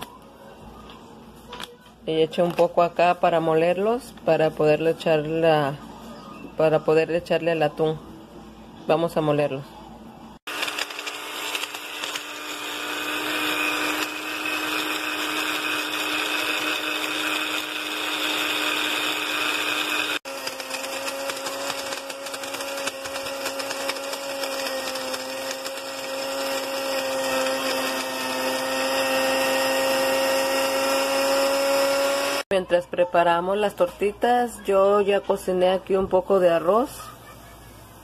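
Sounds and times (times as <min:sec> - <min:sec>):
blender motor grinding: 0:10.5 - 0:32.5.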